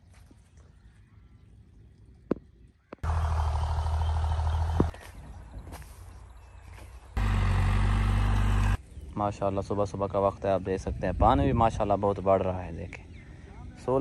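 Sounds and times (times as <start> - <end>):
outdoor ambience: 0.0 - 14.0
motor engine humming: 3.0 - 8.8.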